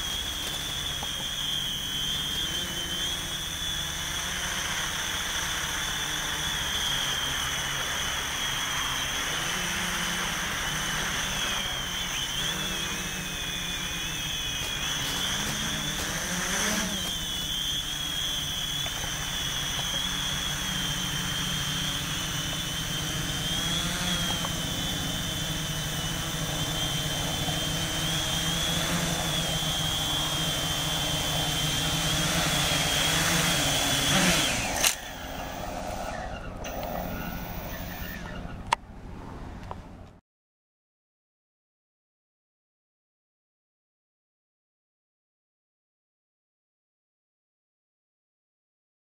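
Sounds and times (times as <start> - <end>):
drone motors whining: 0.0 - 38.8
sharp click: 34.7 - 35.1.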